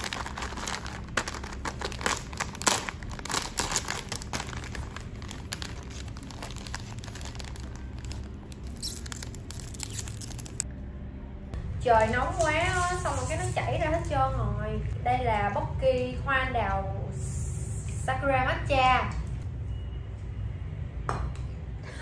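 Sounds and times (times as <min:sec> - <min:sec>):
box and plastic wrapper crinkling: 0:00.0 - 0:10.6.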